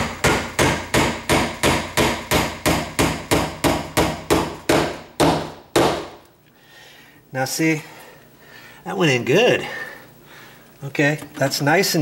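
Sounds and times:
hammer driving nail into wood: 0.0 - 6.2.

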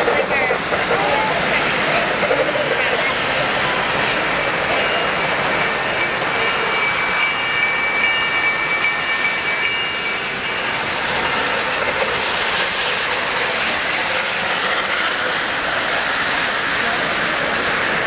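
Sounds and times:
model train wheels on rails: 0.0 - 18.0
high steady tone: 2.4 - 11.8.

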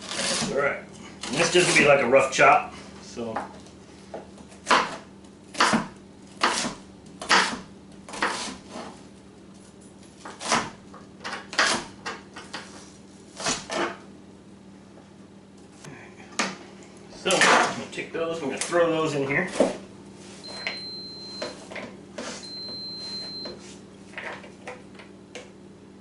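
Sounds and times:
knife chopping on a plastic board: 4.6 - 8.9, 10.2 - 11.9.

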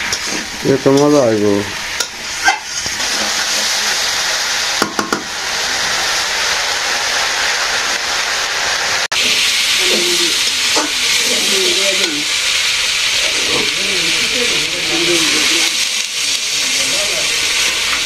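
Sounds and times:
spoon scraping a pan: 0.0 - 1.2, 2.0 - 4.0, 9.2 - 12.3
steam hissing: 0.0 - 18.0
vegetables sizzling in a pan: 0.0 - 18.0.

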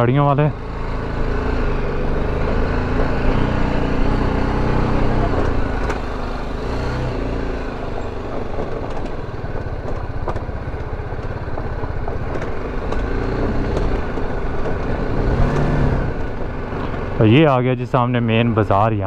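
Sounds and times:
motorcycle engine at low revs: 0.0 - 18.9
tyres rumbling over dirt: 0.0 - 19.0
stones clicking under wheels: 8.1 - 16.4.

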